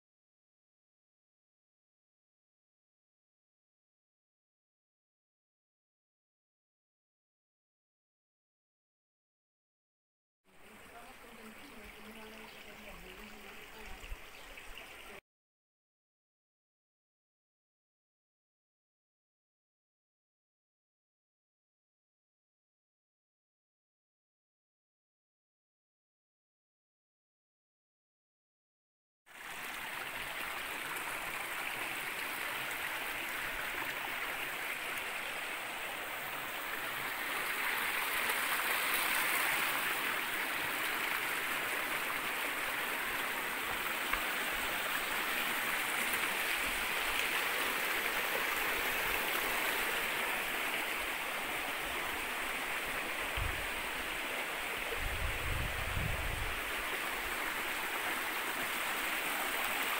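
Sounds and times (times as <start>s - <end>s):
stream water flowing: 10.5s - 15.2s, 29.3s - 59.9s.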